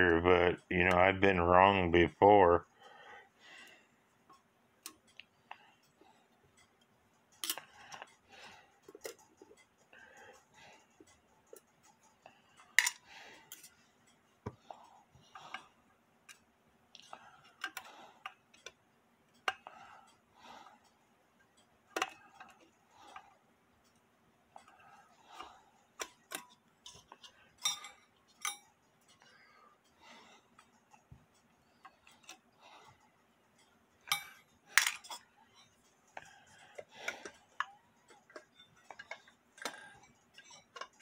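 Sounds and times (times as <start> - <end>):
metallic clinks: 21.6 - 41.0.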